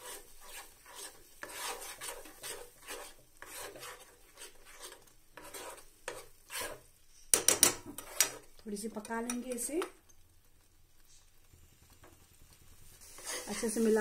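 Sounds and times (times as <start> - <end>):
spoon scraping thick paste: 0.0 - 7.3, 7.9 - 8.6, 13.0 - 13.7.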